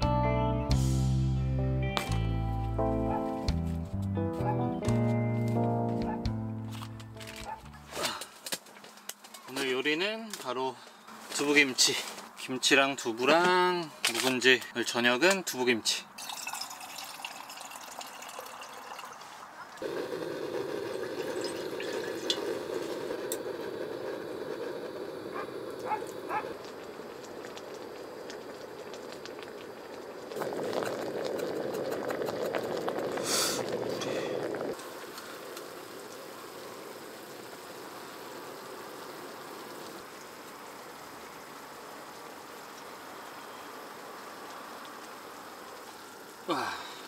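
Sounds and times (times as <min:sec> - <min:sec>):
pork sizzling in a griddle pan: 0:19.8 - 0:31.8, 0:32.4 - 0:46.4.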